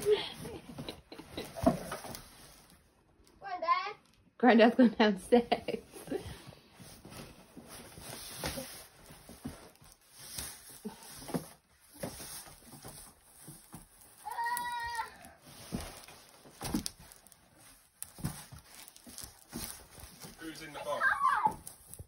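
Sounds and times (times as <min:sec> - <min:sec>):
faint knocks and rustles: 0:00.0 - 0:02.8, 0:06.0 - 0:20.8.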